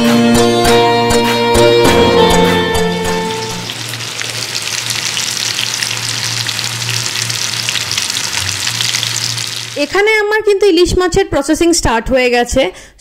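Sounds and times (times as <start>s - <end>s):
music track: 0.0s - 7.0s
fish sizzling in hot oil: 2.8s - 9.9s.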